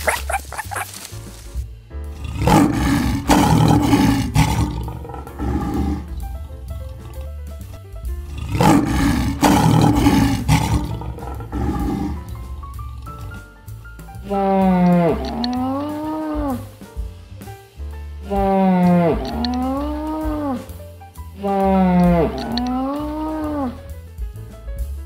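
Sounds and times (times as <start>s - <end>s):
background music: 0.0s - 25.0s
lion roaring: 2.1s - 7.4s, 8.2s - 13.4s, 14.3s - 16.7s, 18.3s - 20.6s, 21.4s - 23.8s.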